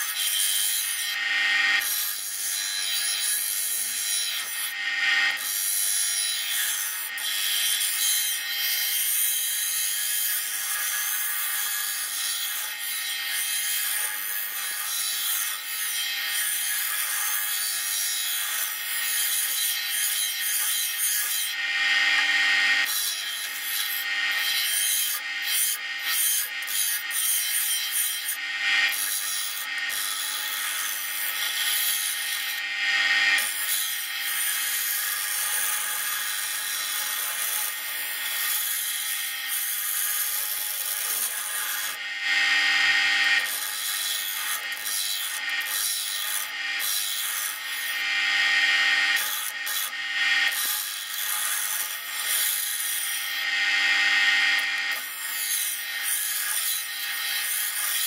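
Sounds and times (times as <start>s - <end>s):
grinder motor hum: 18.8s - 38.0s, 39.2s - 45.7s.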